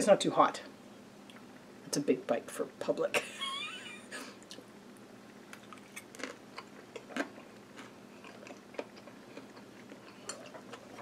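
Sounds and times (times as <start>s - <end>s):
person chewing: 5.5s - 11.0s.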